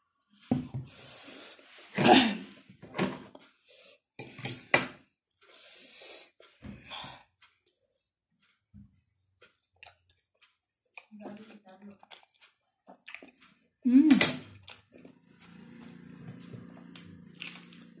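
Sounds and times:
sharp hissing breaths: 0:03.6 - 0:04.0, 0:05.5 - 0:06.4
noodles slurped and chewed: 0:09.4 - 0:13.6, 0:14.5 - 0:18.0.

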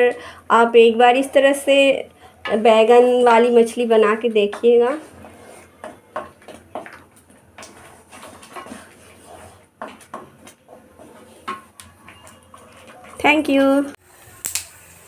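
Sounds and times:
wooden spatula scraping metal pan: 0:02.5 - 0:07.0, 0:07.6 - 0:13.9
spice paste frying: 0:02.6 - 0:15.0.

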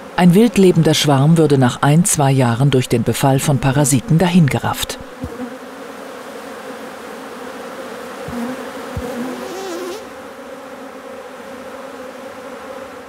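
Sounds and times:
bees buzzing: 0:00.0 - 0:13.0
single bee droning past: 0:03.6 - 0:13.0.

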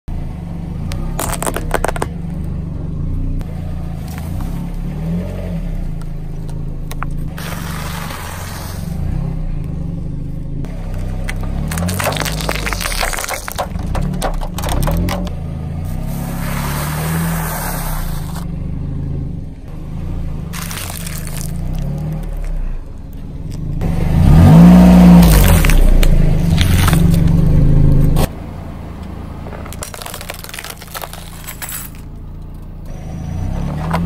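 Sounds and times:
car engine running: 0:00.1 - 0:34.0
tyres crunching objects: 0:00.9 - 0:02.2, 0:10.7 - 0:18.5, 0:20.5 - 0:28.3, 0:29.4 - 0:32.2.

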